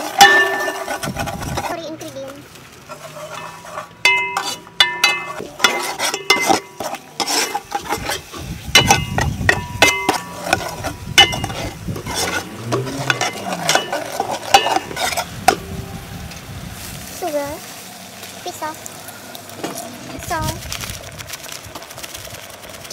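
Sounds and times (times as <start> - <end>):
metal spatula clinking on pot: 0.0 - 1.1, 3.0 - 8.0, 8.8 - 15.7
spatula scraping pot: 0.0 - 2.2, 2.8 - 16.4
paste sizzling: 0.0 - 22.9.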